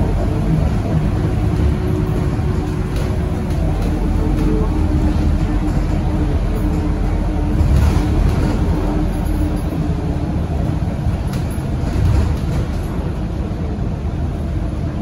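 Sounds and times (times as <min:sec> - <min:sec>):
bus engine rumble: 0:00.0 - 0:15.0.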